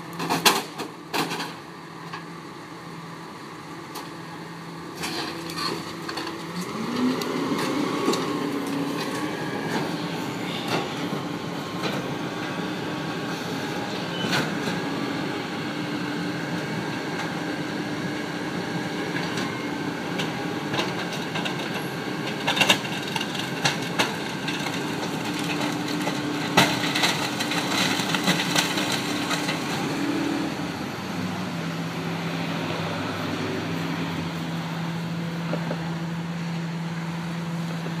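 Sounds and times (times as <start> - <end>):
garbage truck hydraulic packer: 4.9 - 15.2.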